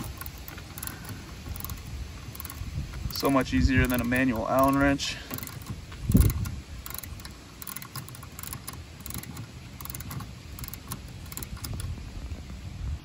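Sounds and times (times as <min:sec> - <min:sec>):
ratchet wrench clicking: 0:00.0 - 0:12.0.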